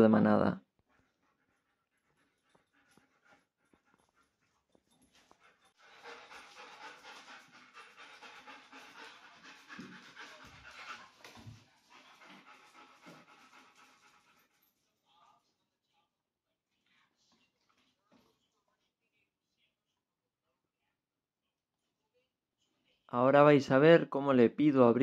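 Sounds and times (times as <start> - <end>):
dog panting: 0.6 - 15.6.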